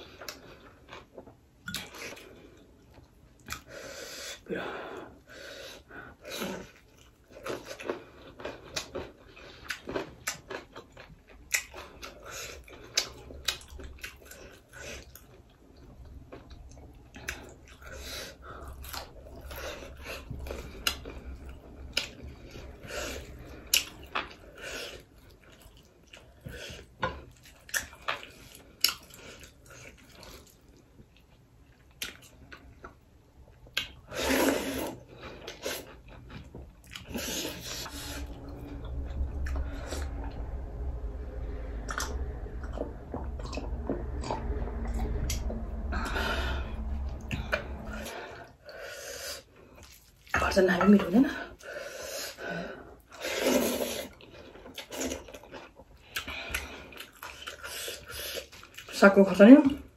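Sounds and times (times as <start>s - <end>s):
person chewing with wet smacks: 0.2s - 3.7s, 6.3s - 18.0s, 18.6s - 33.0s, 34.8s - 39.0s, 53.4s - 59.0s.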